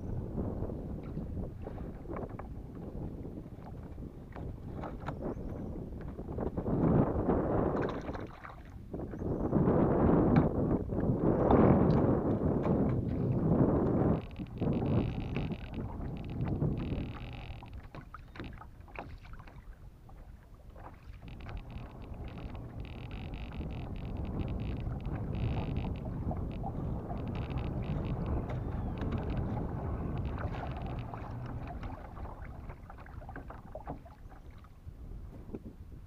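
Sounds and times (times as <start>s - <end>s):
water lapping against kayak hull: 0.0s - 36.0s
fishing reel cranking: 14.1s - 17.8s, 21.2s - 29.5s, 30.2s - 31.6s.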